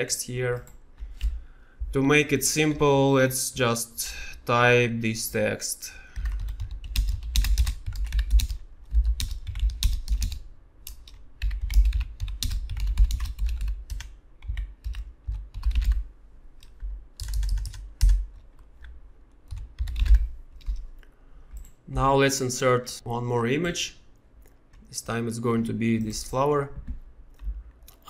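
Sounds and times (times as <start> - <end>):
typing on computer keyboard: 6.2 - 16.0, 16.6 - 18.7, 19.5 - 20.8.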